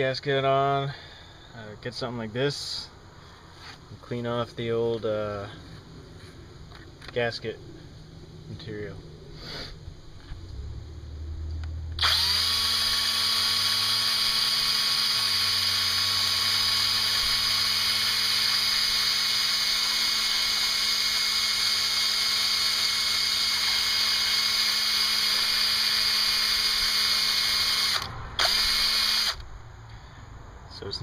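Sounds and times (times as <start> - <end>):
power drill with abrasive disc: 12.0 - 29.4.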